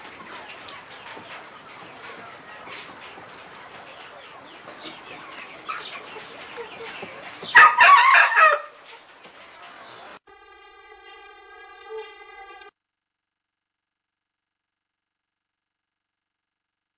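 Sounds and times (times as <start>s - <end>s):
rooster crowing: 7.5s - 8.8s.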